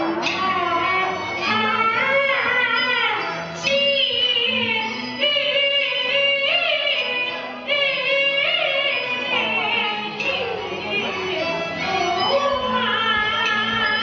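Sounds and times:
high wavering opera singing: 0:00.0 - 0:14.0.

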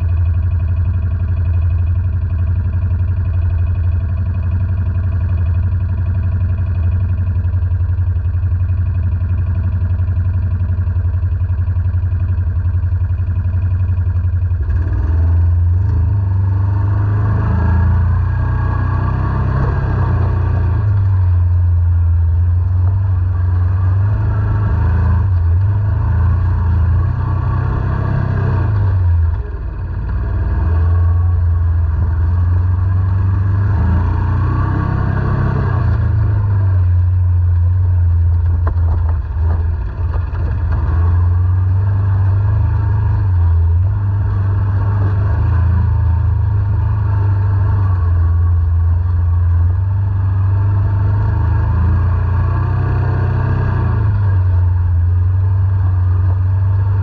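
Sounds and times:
quad bike engine: 0:00.0 - 0:57.0.

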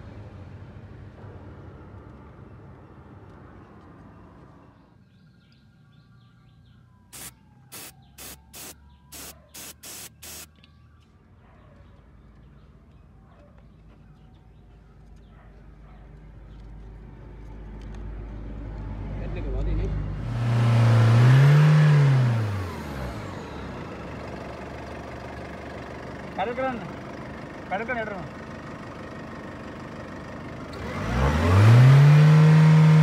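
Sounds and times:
aerosol spray bursts: 0:07.2 - 0:10.5.

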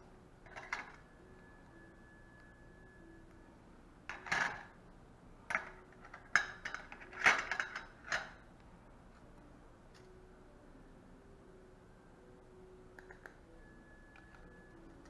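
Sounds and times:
metal instruments clattering in a tray: 0:05.5 - 0:08.4.

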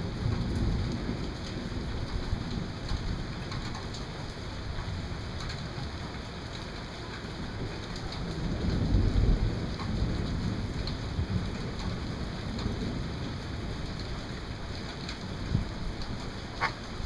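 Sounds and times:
rain pattering: 0:00.0 - 0:17.0
thunder rumbling: 0:07.4 - 0:17.0.

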